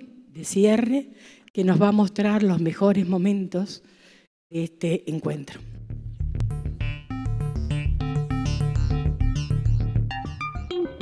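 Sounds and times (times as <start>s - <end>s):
electronic music with keyboard: 6.2s - 11.0s.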